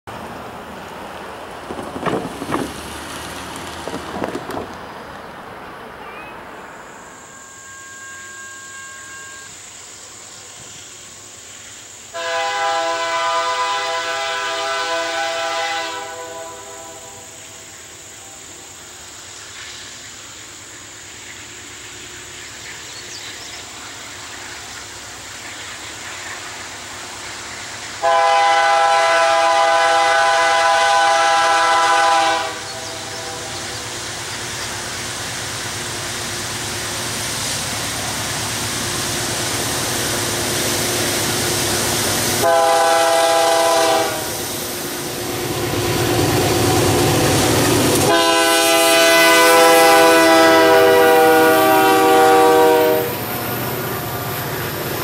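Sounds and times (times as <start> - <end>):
locomotive air horn blasts: 7.0 - 9.6, 12.1 - 17.4, 28.0 - 33.5, 42.4 - 44.4, 48.0 - 53.3.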